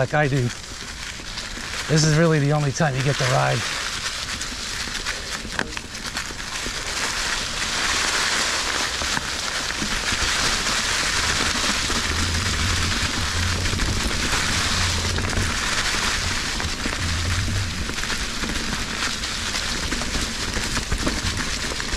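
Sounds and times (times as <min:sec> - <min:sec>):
bike rattle: 0:00.0 - 0:21.9
crackling tyre ticks: 0:00.0 - 0:21.9
tyre and wind noise: 0:00.0 - 0:21.9
low wind buffeting: 0:10.0 - 0:20.5.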